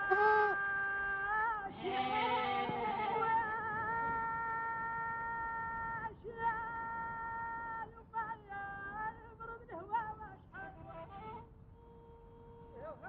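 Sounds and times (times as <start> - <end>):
woman singing folk melody: 0.0 - 11.4.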